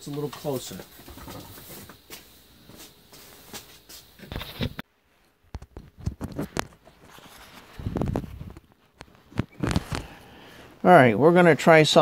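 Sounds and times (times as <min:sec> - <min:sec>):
knocks and rustling: 0:00.0 - 0:02.8.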